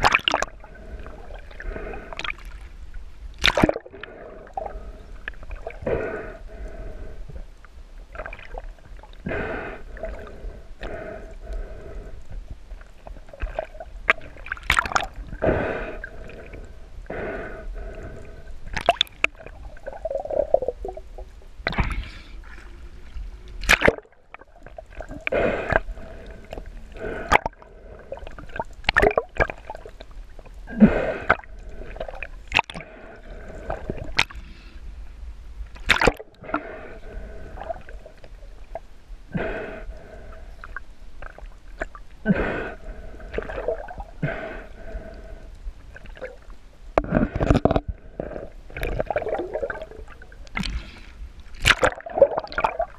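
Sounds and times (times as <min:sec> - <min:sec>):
seawater sloshing and gurgling: 0:00.0 - 0:02.7, 0:03.4 - 0:06.0, 0:12.8 - 0:16.5, 0:18.7 - 0:34.6, 0:35.8 - 0:38.9, 0:40.6 - 0:52.9.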